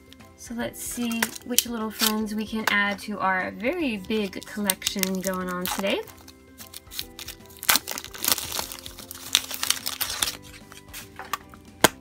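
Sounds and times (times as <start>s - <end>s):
soft background music: 0.0s - 12.0s
plastic wrapper crinkling: 4.2s - 11.1s.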